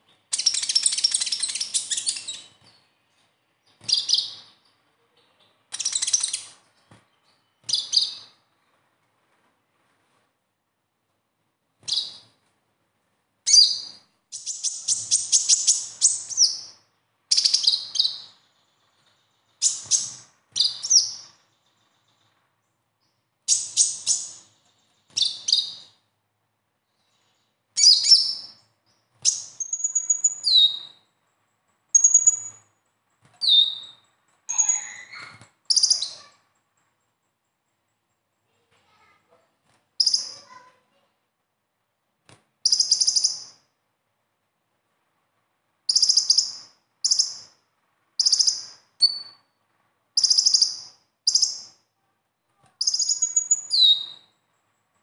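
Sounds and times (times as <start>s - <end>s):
bird chirping trills: 0.0s - 8.9s, 11.7s - 12.4s, 13.5s - 26.2s, 26.8s - 39.2s, 40.0s - 40.8s, 42.6s - 43.7s, 45.8s - 51.9s, 52.6s - 55.0s
thin whistled bird notes: 48.2s - 49.5s, 52.8s - 54.4s.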